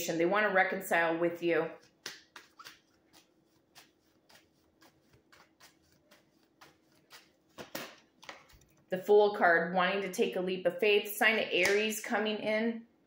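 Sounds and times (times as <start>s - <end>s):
cards being shuffled: 1.8s - 8.9s.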